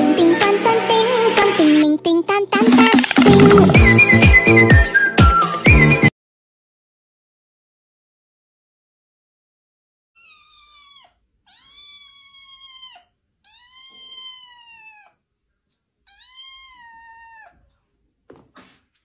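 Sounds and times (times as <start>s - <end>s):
kitten meowing: 10.2s - 15.1s, 16.1s - 17.6s.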